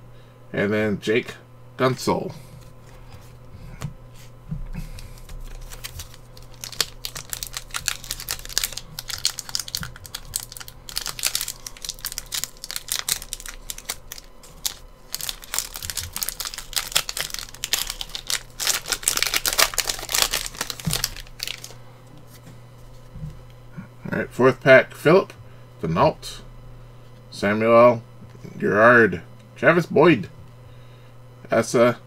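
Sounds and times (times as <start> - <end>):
foil wrapper tearing and crinkling: 5.0 - 21.8.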